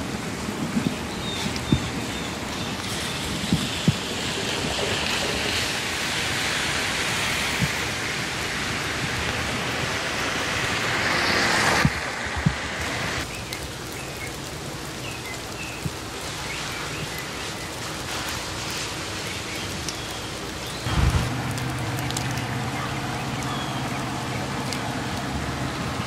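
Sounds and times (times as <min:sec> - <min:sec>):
wheels rushing on rails: 0:00.0 - 0:13.6, 0:16.2 - 0:26.0
diesel engine running: 0:20.9 - 0:26.0.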